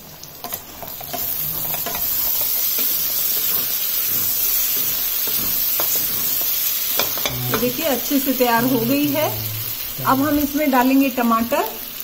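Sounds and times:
vegetables sizzling in oil: 0.0s - 12.0s
spatula scraping: 4.2s - 10.3s.

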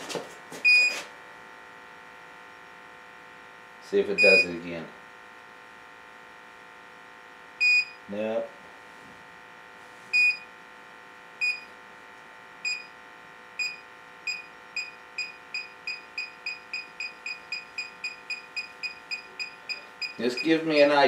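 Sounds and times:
gas detector beeping: 4.2s - 4.6s, 7.6s - 8.0s, 10.2s - 10.5s, 11.4s - 11.7s, 12.6s - 12.9s, 13.6s - 21.0s.

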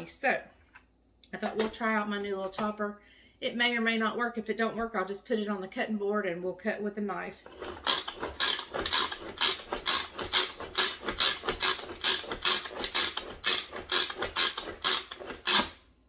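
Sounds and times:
food chopper blades clattering: 7.5s - 15.8s.

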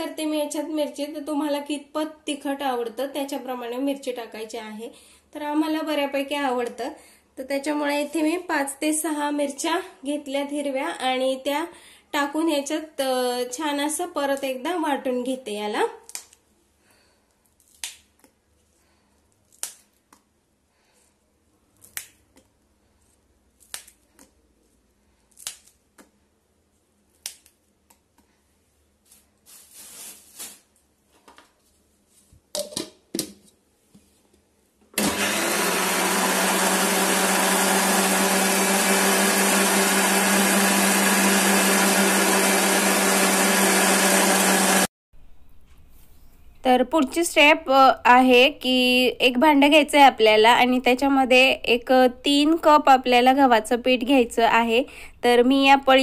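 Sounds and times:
electric mixer grinder running: 35.0s - 44.9s.

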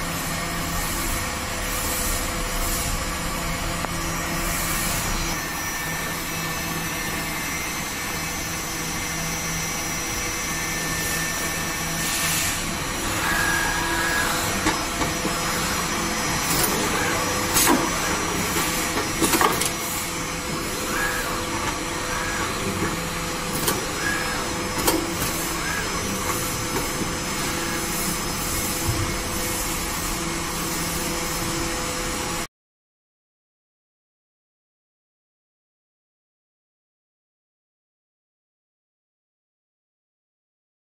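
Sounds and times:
machine humming: 0.0s - 32.5s.

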